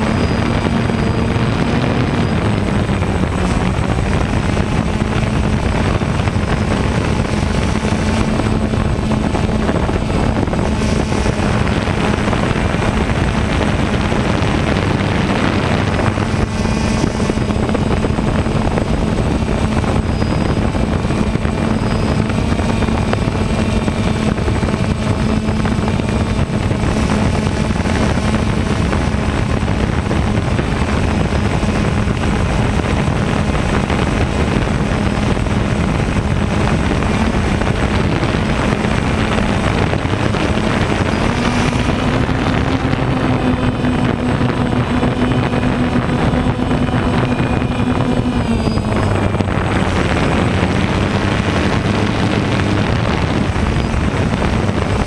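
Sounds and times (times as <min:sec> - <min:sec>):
drone propellers buzzing: 0:00.0 - 0:55.0.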